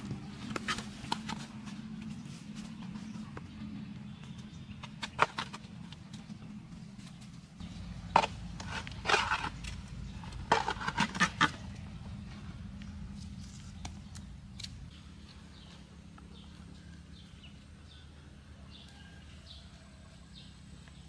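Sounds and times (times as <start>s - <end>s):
steady low hum: 0.0s - 21.0s
blade scraping soil: 7.6s - 11.8s.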